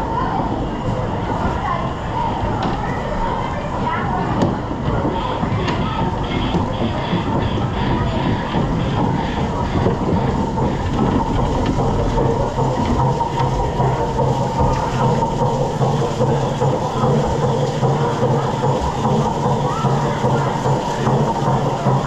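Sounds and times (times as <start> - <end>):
rushing water: 5.2 - 22.0.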